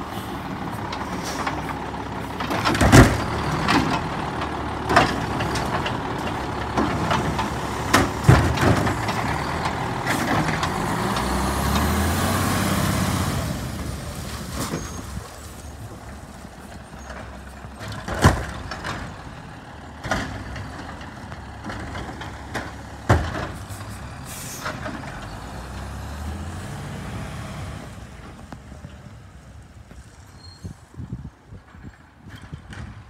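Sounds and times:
diesel truck engine: 0:00.0 - 0:33.0
air brake hiss: 0:24.3 - 0:24.7.

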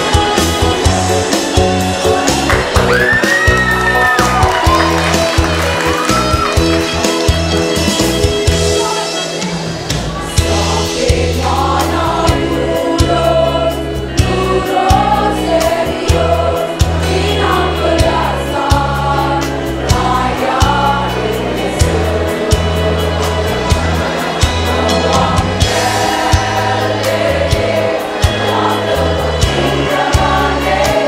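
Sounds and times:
women's choir singing a march: 0:10.3 - 0:31.0.

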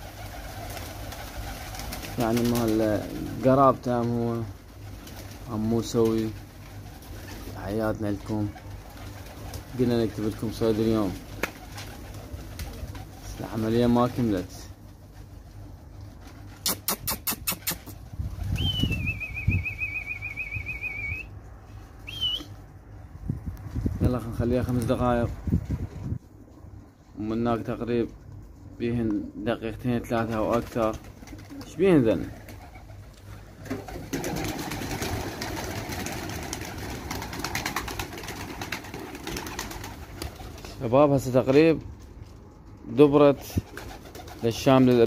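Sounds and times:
pigeon wing flutters: 0:00.0 - 0:07.6, 0:08.2 - 0:20.6, 0:30.2 - 0:40.8, 0:43.4 - 0:45.0
pigeons clicking: 0:00.0 - 0:21.1, 0:30.1 - 0:40.8, 0:43.3 - 0:45.0
warbling whistle: 0:18.6 - 0:21.3, 0:22.0 - 0:22.5.

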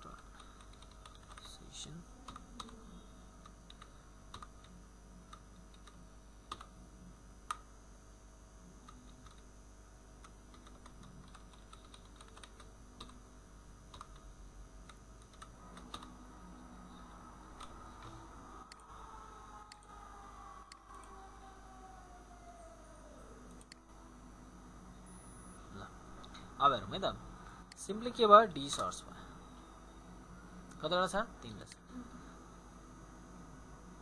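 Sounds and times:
faint keyboard typing: 0:00.0 - 0:02.8, 0:03.4 - 0:06.7, 0:08.8 - 0:09.5, 0:10.2 - 0:13.2, 0:13.9 - 0:16.2, 0:17.6 - 0:21.3.

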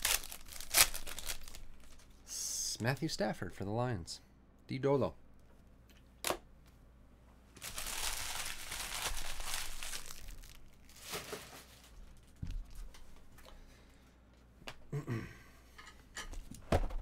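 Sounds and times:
plastic wrapping crinkling: 0:00.0 - 0:02.1, 0:07.6 - 0:12.8.

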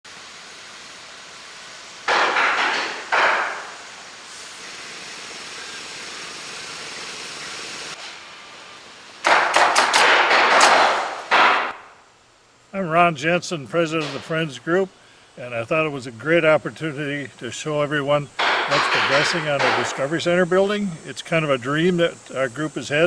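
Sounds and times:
work-site noise bursts: 0:00.1 - 0:23.0
nail gun firing: 0:02.1 - 0:03.8, 0:09.2 - 0:12.0, 0:14.0 - 0:14.3, 0:18.4 - 0:20.1.

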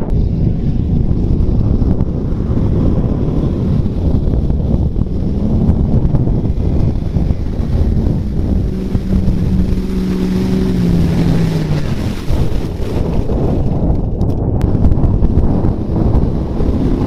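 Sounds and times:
truck engine revving: 0:00.0 - 0:13.5
wind buffeting microphone: 0:00.0 - 0:17.0.

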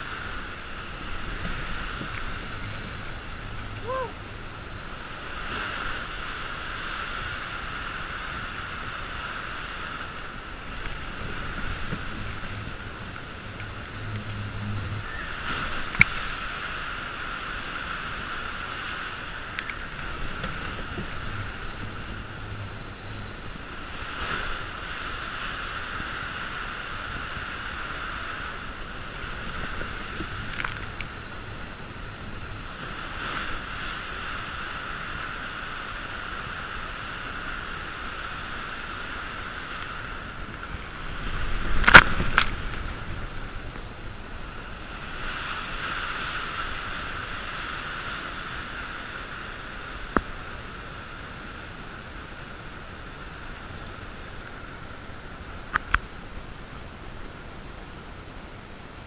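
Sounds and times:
rushing water: 0:00.0 - 0:59.0.

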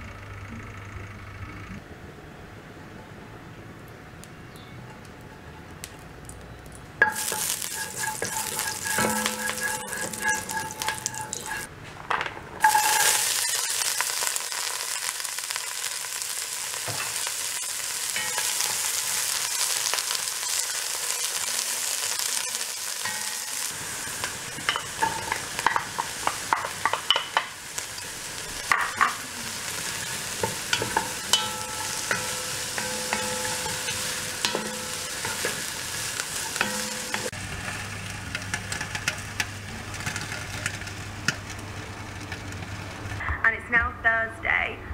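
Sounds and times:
vegetables sizzling in oil: 0:06.3 - 0:11.7, 0:12.6 - 0:43.2
wooden spoon scraping a pot: 0:07.1 - 0:11.7.

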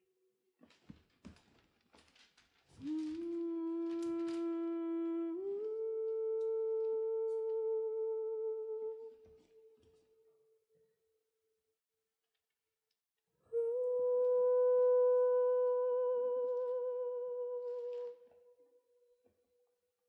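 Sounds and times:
person humming: 0:02.8 - 0:10.1, 0:13.5 - 0:18.7.

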